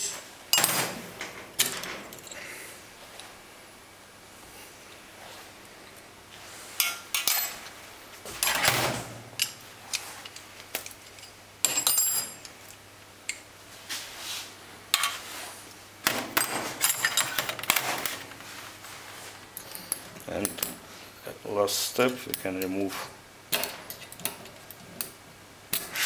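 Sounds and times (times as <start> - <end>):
metal parts clinking on steel tray: 16.4 - 17.8.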